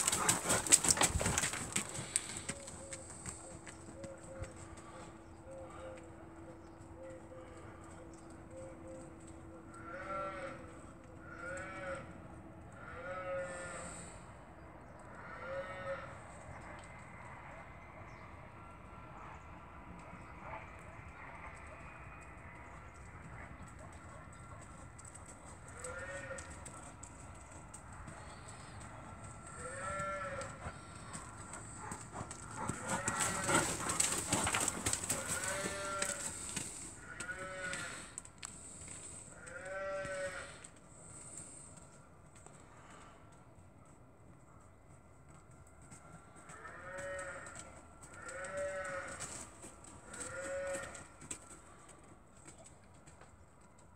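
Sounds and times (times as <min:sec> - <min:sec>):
farm animals calling: 0:00.0 - 0:14.2, 0:28.0 - 0:41.6, 0:46.6 - 0:51.8.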